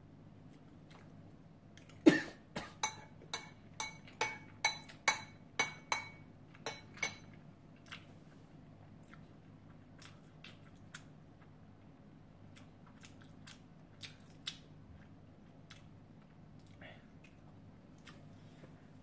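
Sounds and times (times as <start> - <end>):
metal spoon clinking ceramic bowl: 2.8 - 7.4.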